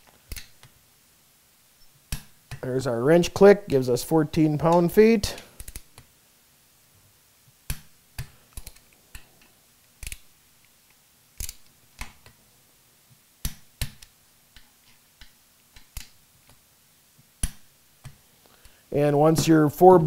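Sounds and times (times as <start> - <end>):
torque wrench clicking: 10.0 - 10.3.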